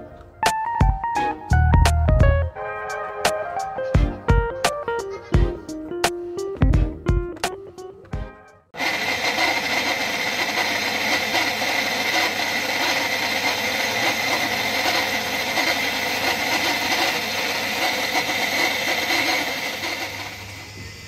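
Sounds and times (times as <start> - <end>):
water pump running with whine: 8.8 - 21.0.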